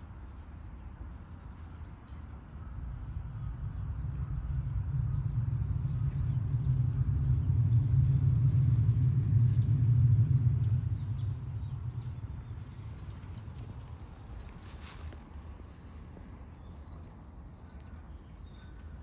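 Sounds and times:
passing motor vehicle rumble: 2.8s - 17.1s.

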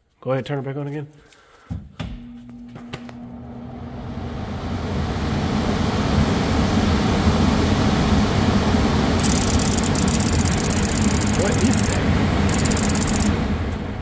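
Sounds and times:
furnace blower hum: 2.2s - 9.2s.

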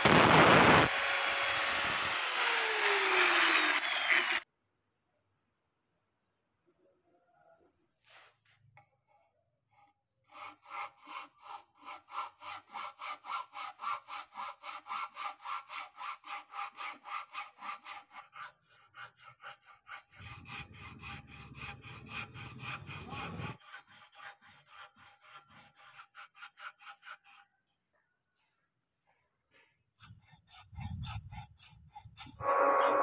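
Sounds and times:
hand file rasping on wood: 9.7s - 27.8s, 29.6s - 33.0s.

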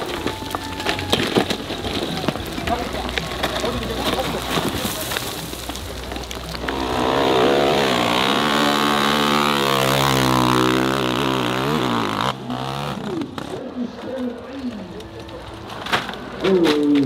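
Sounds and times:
dirt bike engine revving: 2.7s - 13.7s.

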